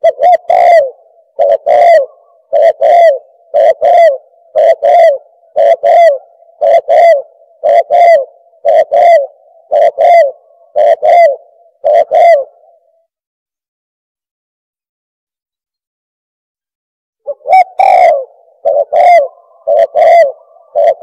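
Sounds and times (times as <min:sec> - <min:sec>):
dove cooing: 0:00.0 - 0:13.1, 0:17.3 - 0:21.0.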